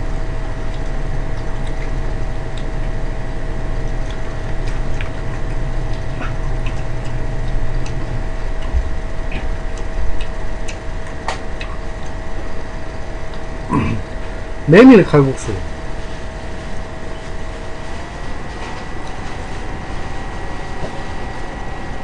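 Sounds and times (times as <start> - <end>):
faint constant whine: 0.0 - 22.0
low hum: 0.0 - 22.0.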